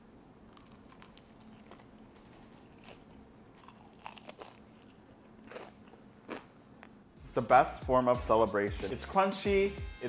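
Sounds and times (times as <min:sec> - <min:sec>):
chewing crispy chicken crunches: 0:00.5 - 0:06.4.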